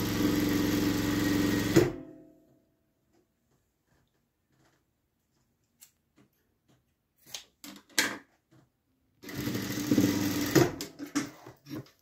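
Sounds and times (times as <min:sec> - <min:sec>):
sewing machine stitching: 0:00.0 - 0:02.0, 0:09.2 - 0:12.0.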